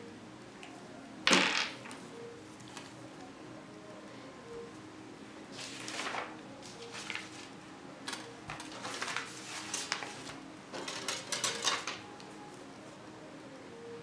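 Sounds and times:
paper rustling on cutting mat: 5.6 - 7.5, 8.5 - 10.4.

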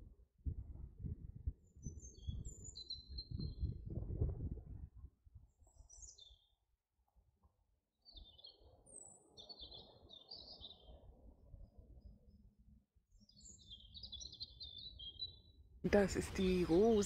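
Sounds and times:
songbird singing high chirps: 1.6 - 3.8, 5.6 - 6.6, 8.0 - 12.4, 13.1 - 17.0.

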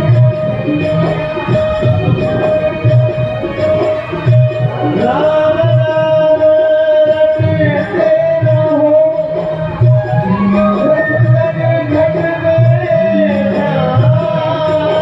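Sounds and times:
hand drum beat: 9.8 - 15.0.

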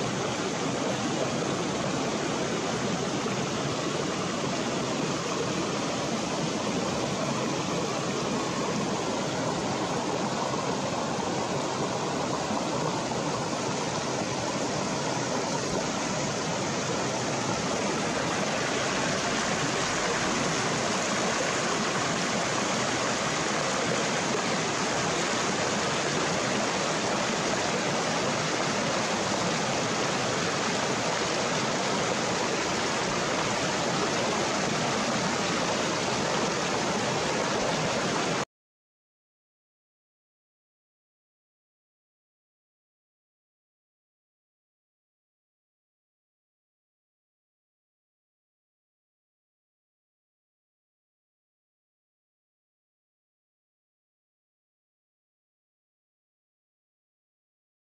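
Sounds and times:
river rushing over rocks: 0.0 - 38.4.

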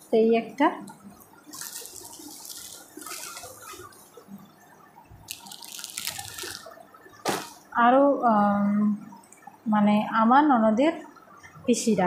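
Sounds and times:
clothing rustling and crinkling: 1.4 - 4.2, 5.3 - 7.6.

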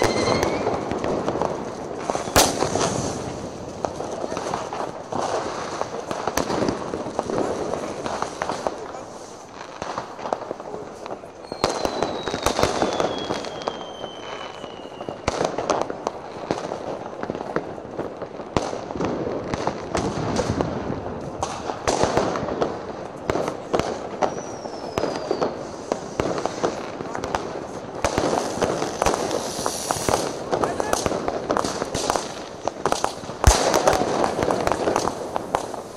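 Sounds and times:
falling firework whistle: 0.0 - 1.1, 11.4 - 15.4, 24.2 - 26.1
fireworks cracks and bangs: 0.0 - 35.9.

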